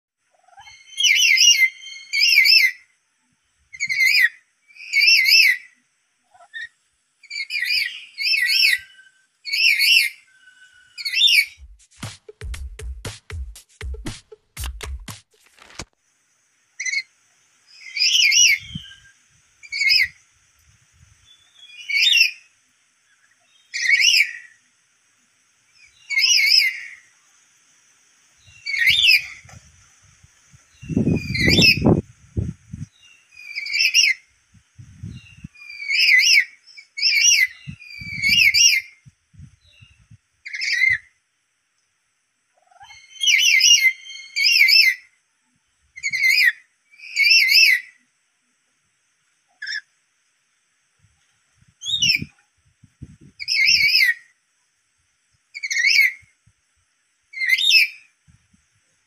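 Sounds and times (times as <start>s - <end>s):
parrot shrill calls: 0.6s - 2.8s, 3.8s - 5.7s, 6.5s - 11.6s, 17.8s - 19.1s, 19.7s - 20.2s, 23.7s - 24.5s, 33.4s - 34.2s, 35.6s - 39.0s, 42.8s - 45.1s, 46.0s - 48.0s, 53.4s - 54.3s, 55.6s - 56.2s.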